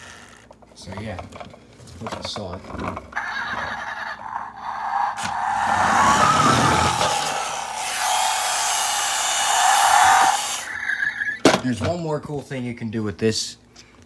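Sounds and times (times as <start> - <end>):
toy truck motor whirring: 3.2 - 11.3.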